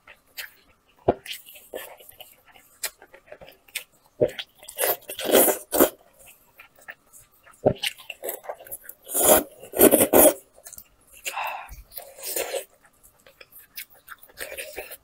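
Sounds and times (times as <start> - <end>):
chewing and mouth smacks: 5.8 - 9.0, 10.6 - 15.0.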